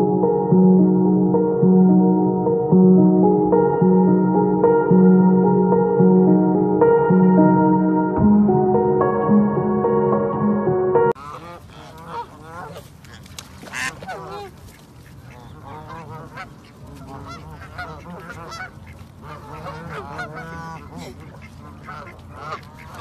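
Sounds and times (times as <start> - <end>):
soft instrumental music: 0.0 - 11.2
goose honking: 11.2 - 23.0.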